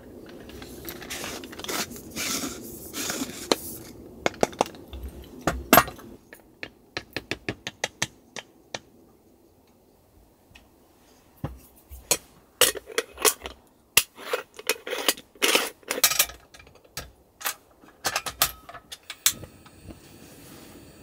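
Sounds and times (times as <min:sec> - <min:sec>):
metal parts clicking and knocking: 0:00.1 - 0:02.6, 0:12.1 - 0:19.4
metal screwing scrapes: 0:00.3 - 0:03.9, 0:12.1 - 0:16.5
gas burner hissing: 0:19.0 - 0:21.0.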